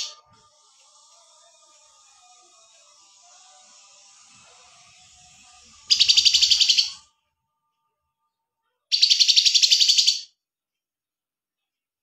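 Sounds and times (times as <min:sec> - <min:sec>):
songbird trilling: 0:05.9 - 0:07.0, 0:08.9 - 0:10.3.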